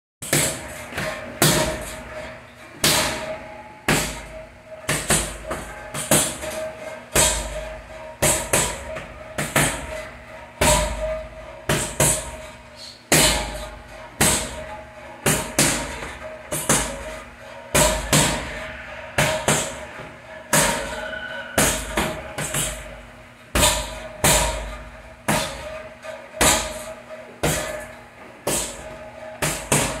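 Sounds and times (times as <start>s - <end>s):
gloved punches on padded bag: 29.4s - 30.0s.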